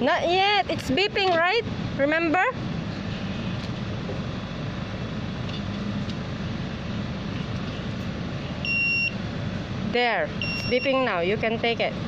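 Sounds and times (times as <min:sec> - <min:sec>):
vending machine humming: 0:00.0 - 0:12.0
high electronic beep: 0:08.6 - 0:09.2, 0:10.4 - 0:11.0.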